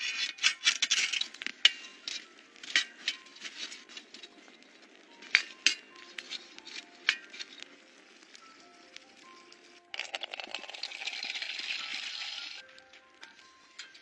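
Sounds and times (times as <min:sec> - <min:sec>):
campfire clicks: 0:00.0 - 0:14.0
faint background music: 0:00.0 - 0:14.0.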